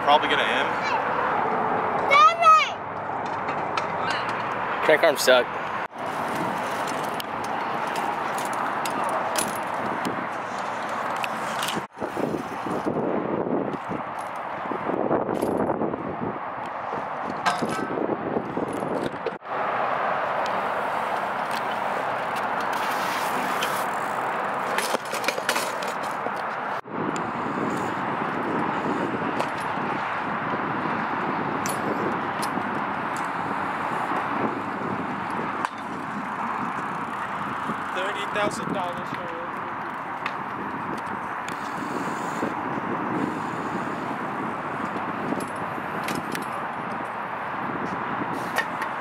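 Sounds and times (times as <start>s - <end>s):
bmx bikes clicking and rattling: 2.9s - 15.9s, 16.8s - 19.4s, 20.0s - 49.0s
wind on the microphone: 6.0s - 19.4s, 26.8s - 49.0s
bike tyres hissing on concrete: 20.6s - 24.6s, 41.6s - 46.0s, 48.2s - 48.8s.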